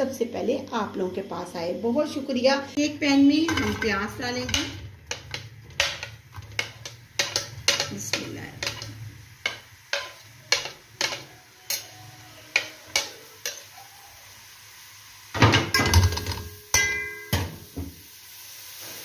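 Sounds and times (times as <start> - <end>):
utensil knocking on steel pan: 3.5 - 11.2.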